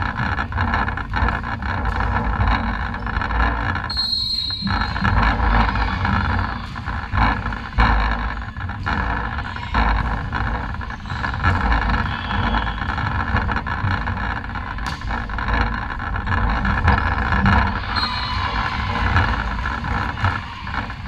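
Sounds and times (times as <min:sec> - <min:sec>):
reverberant sports hall din: 0:00.0 - 0:21.0
volleyball hits: 0:14.4 - 0:21.0.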